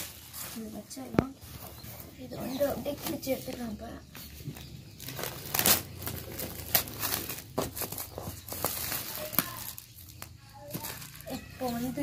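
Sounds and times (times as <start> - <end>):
plastic shrink-wrap tearing: 5.0 - 12.0.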